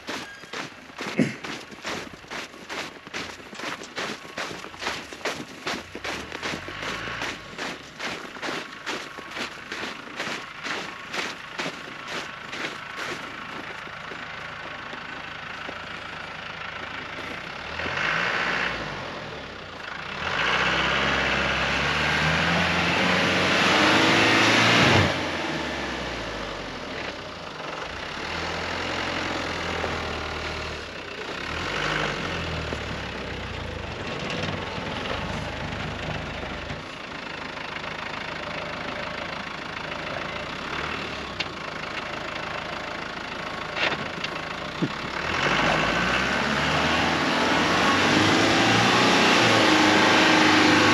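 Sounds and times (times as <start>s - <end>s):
tyres churning snow: 0.0s - 50.9s
car engine revving: 0.1s - 14.2s, 17.1s - 27.0s, 28.0s - 36.7s, 42.4s - 50.9s.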